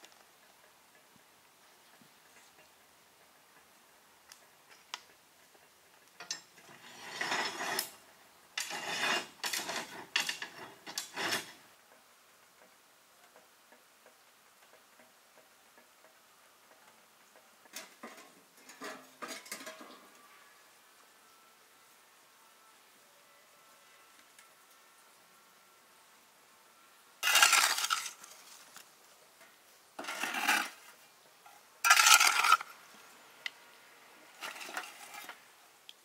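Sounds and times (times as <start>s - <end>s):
metal clanking on stove top: 17.7s - 20.0s.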